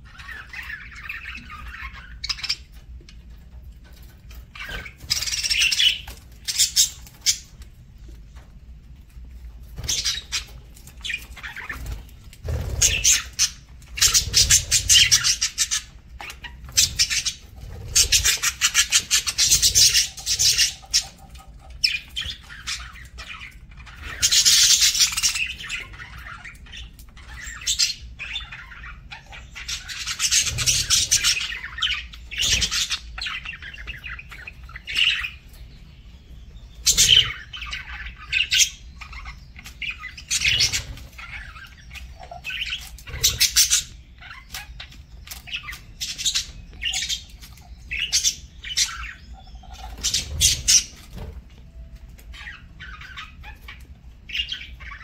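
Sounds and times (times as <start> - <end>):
budgerigars chattering and chirping: 0.0 - 7.7, 9.3 - 55.0
wings fluttering: 9.6 - 21.0.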